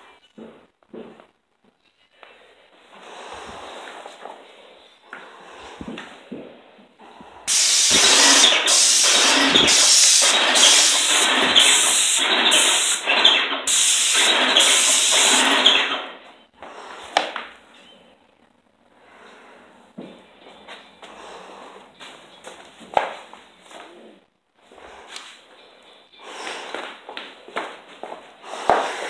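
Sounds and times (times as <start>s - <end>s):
paint sprayer hissing: 7.5s - 16.2s.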